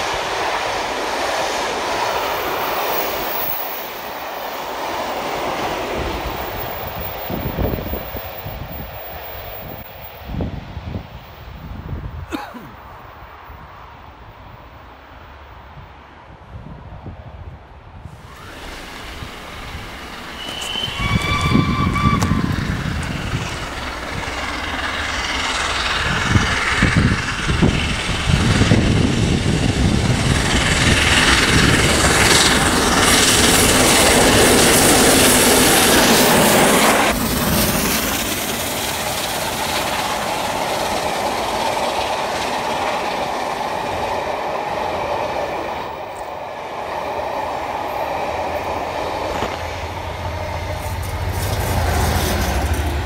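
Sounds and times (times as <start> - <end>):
steam locomotive exhaust: 18.1 - 53.0
train wheels clattering on rails: 18.5 - 53.0
steam locomotive whistle: 20.2 - 23.5.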